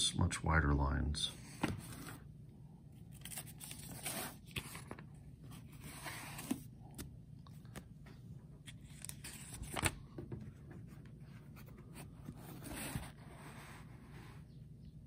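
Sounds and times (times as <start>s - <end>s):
paper pages rustling: 3.1s - 7.9s, 8.6s - 13.9s.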